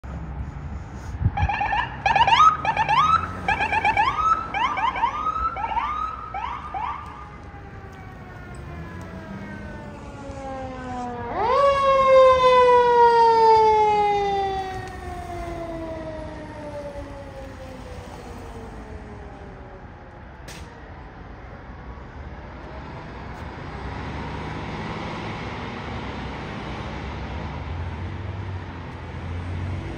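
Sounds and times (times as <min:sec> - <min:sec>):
fire engine siren wailing: 0:01.3 - 0:29.9
ambulance siren yelping: 0:01.4 - 0:20.2.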